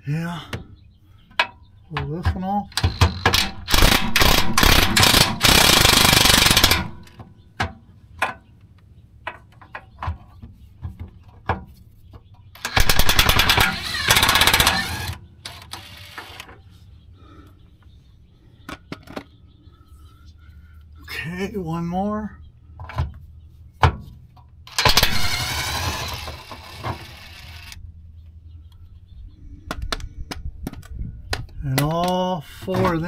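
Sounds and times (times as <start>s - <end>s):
impact driver hammering: 2.2s - 7.2s, 12.6s - 15.2s.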